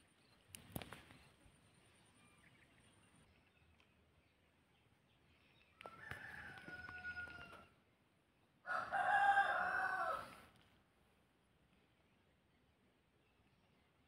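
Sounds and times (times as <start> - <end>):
rooster crowing: 5.8 - 7.7, 8.6 - 10.4.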